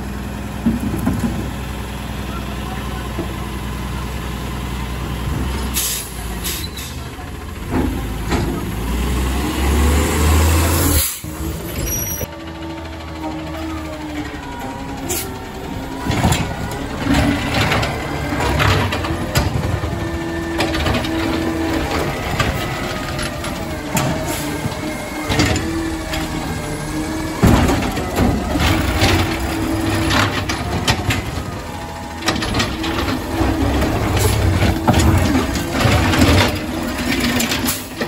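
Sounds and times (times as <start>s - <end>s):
diesel engine running: 0.0s - 38.0s
hydraulics whining: 0.0s - 38.0s
metal clanks and bangs: 14.9s - 38.0s.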